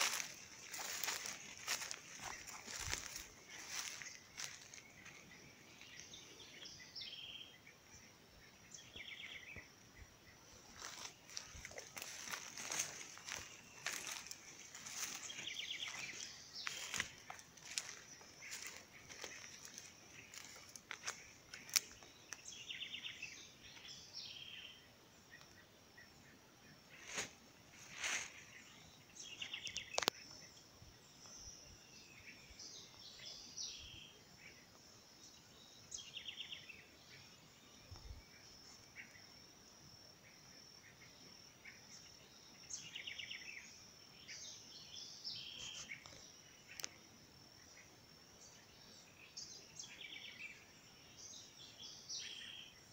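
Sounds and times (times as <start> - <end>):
birds calling: 0.0 - 26.1.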